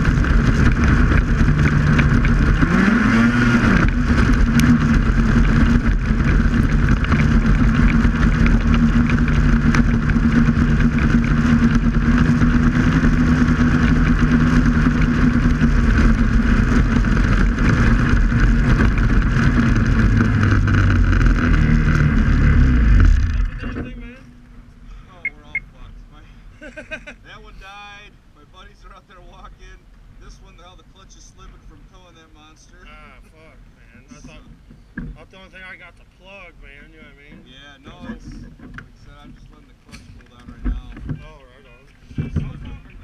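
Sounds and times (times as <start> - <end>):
snowmobile engine at speed: 0.0 - 24.1, 40.9 - 43.0.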